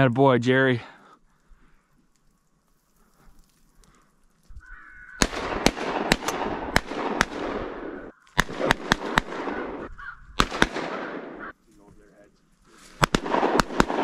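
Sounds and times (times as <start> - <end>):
crows cawing: 4.5 - 5.6, 9.8 - 10.4, 11.2 - 11.6
shotgun shots: 5.2 - 11.5, 13.0 - 14.0.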